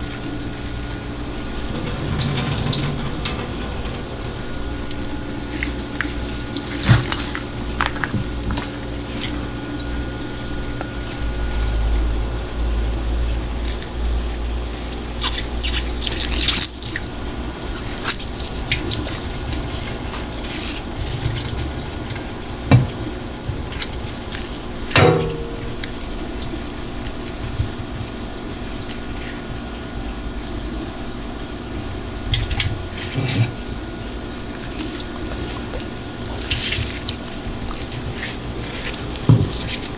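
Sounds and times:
steady low hum: 0.0 - 39.9
tap water running into sink: 18.5 - 26.8.

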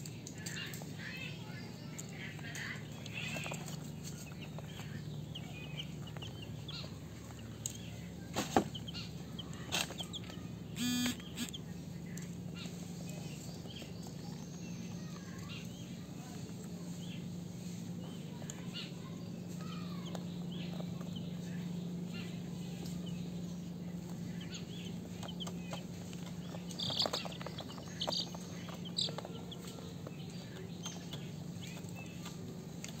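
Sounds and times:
steady low hum: 0.0 - 33.0
chicks peeping: 0.1 - 33.0.

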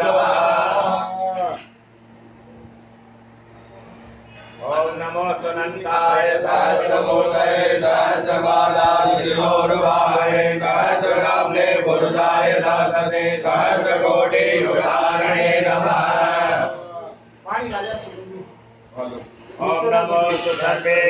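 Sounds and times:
mantras being chanted: 4.6 - 17.2.

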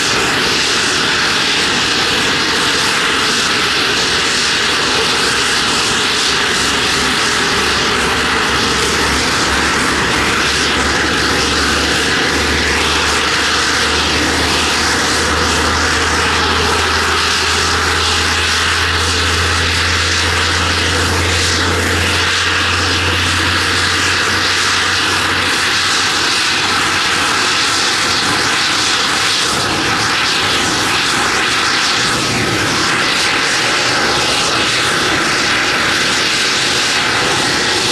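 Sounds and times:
jet engines whining: 0.0 - 37.9
low hum: 5.0 - 27.5.

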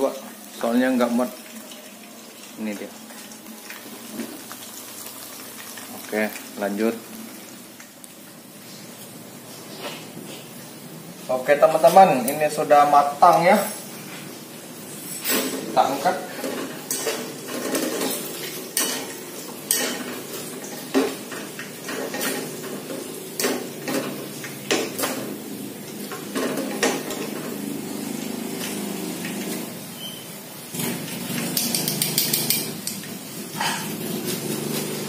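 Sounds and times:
hot oil hissing: 0.0 - 35.0
metal utensils clinking on wok: 16.4 - 20.2, 31.4 - 34.0.

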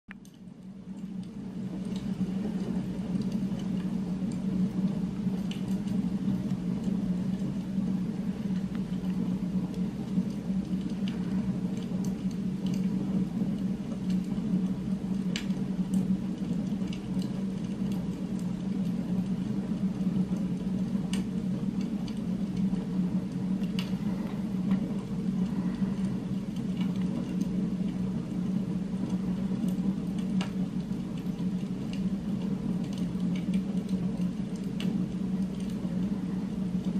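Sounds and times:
low droning hum: 0.1 - 36.9.

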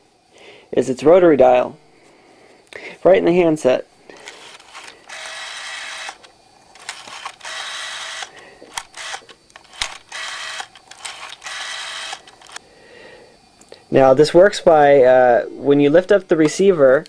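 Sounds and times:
rotary dial whirring: 4.1 - 12.6.

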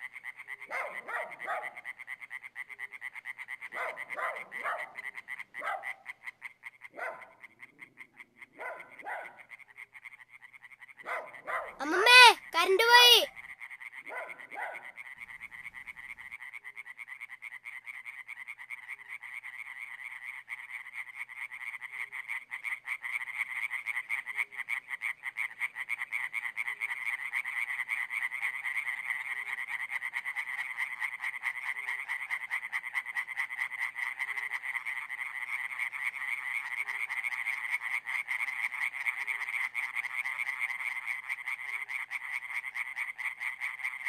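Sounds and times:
frogs trilling: 15.0 - 44.0.

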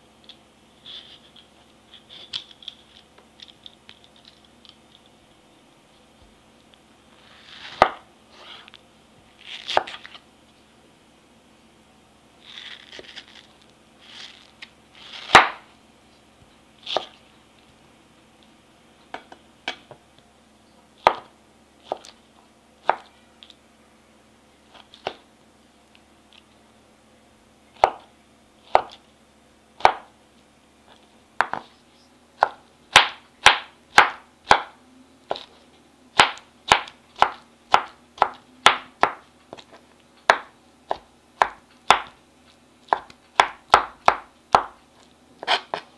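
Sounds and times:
knife chopping on wooden board: 7.7 - 8.0, 15.1 - 15.6, 16.9 - 17.2, 21.0 - 21.3, 22.8 - 23.1, 27.8 - 28.1, 28.7 - 29.0, 29.8 - 30.1, 31.4 - 31.7, 32.4 - 35.5, 36.2 - 42.2, 42.9 - 44.8, 45.4 - 45.9.

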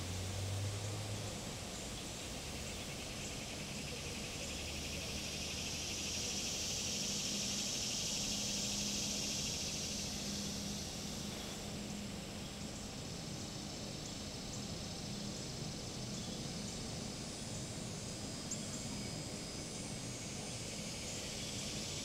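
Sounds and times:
cicada buzzing: 0.0 - 22.0.

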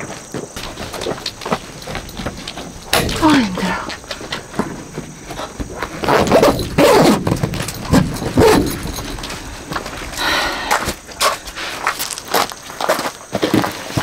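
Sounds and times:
dog barking: 8.4 - 8.8.

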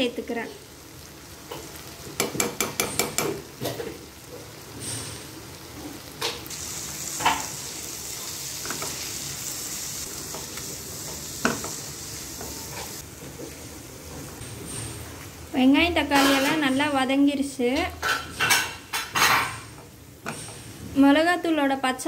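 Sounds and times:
masala sizzling in oil: 0.0 - 22.0
spatula knocking against pan: 2.2 - 3.4.

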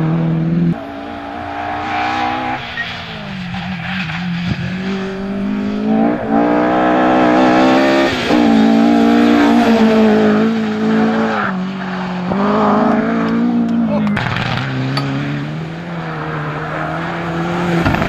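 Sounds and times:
rally car engine revving: 0.0 - 18.0.

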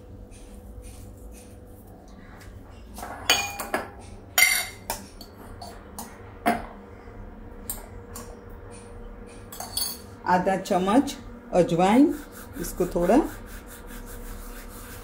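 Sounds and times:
metal spoon clinking: 9.5 - 10.1.

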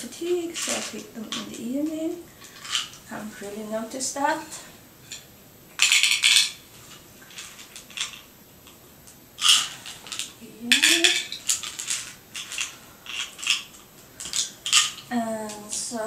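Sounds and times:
pills rattling in plastic bottle: 0.2 - 3.1, 5.8 - 8.3, 9.4 - 15.1
pills clicking into pill organizer: 5.8 - 6.6, 9.4 - 15.1.

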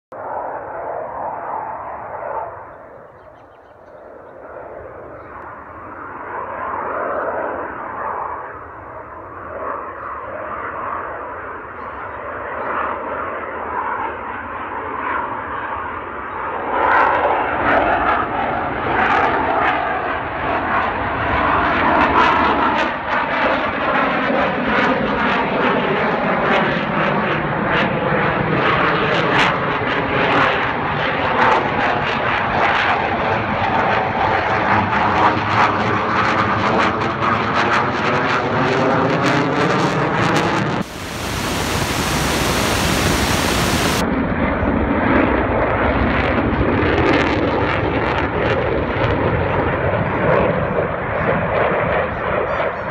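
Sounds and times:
jet engines flying past: 0.2 - 3.2, 4.0 - 52.9
harsh hiss: 40.8 - 44.0.

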